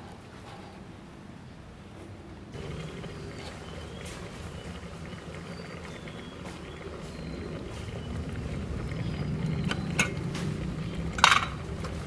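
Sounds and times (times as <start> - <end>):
pot bubbling on a stove: 2.5 - 12.0.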